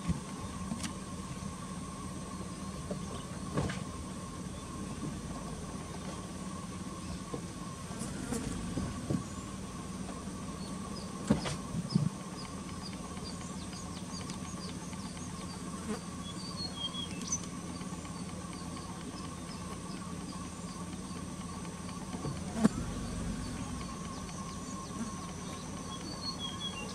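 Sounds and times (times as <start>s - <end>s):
steady background hum: 0.0s - 26.9s
sharp clicks: 10.7s - 26.9s.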